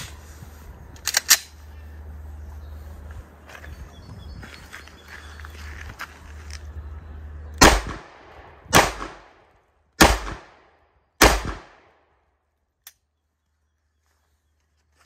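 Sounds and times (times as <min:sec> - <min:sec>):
pistol shots with echo: 0:07.6 - 0:09.4, 0:10.0 - 0:12.0.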